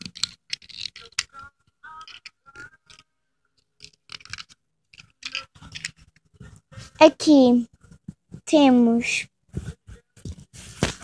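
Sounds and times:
plastic toy clicks and scrapes: 0.0s - 1.4s, 2.0s - 3.0s, 3.8s - 6.2s.

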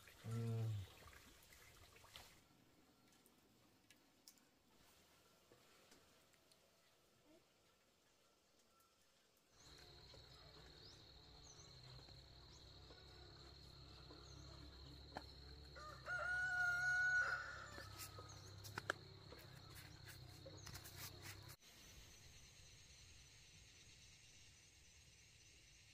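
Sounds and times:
rooster crowing: 15.8s - 18.1s.

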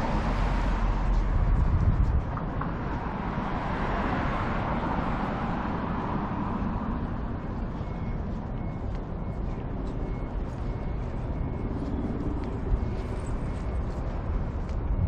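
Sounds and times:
road traffic: 0.0s - 15.0s
faint high beep: 6.5s - 15.0s.

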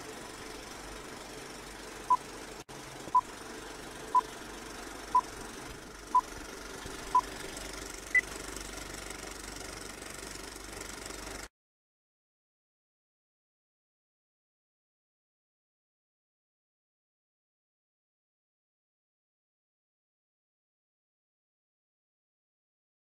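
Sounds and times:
film projector whirring: 0.0s - 11.5s.

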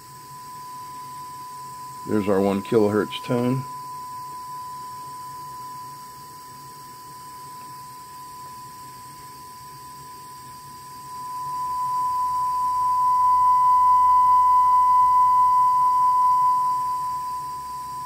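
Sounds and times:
sine test tone through speakers: 0.0s - 18.0s.

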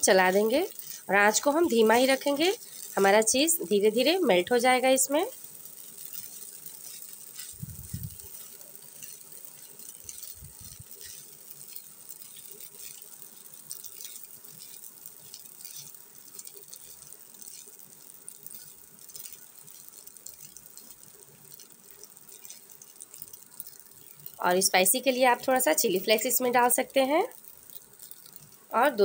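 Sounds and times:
steady faint hiss: 0.0s - 29.0s
soft low thumps: 7.6s - 8.2s.

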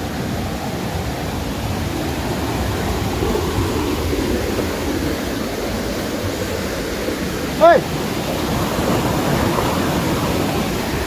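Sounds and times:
flooded river rushing: 0.0s - 11.0s.

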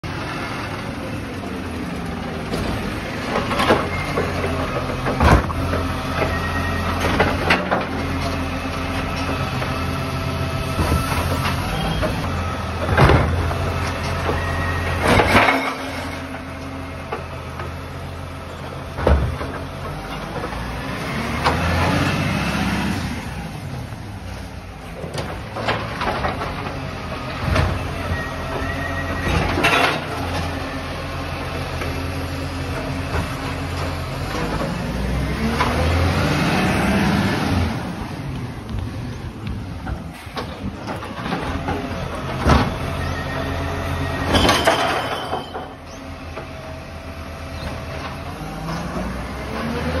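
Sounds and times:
clanks and crashes of bin: 2.5s - 5.8s, 12.8s - 16.3s, 29.2s - 30.5s, 44.2s - 45.8s.

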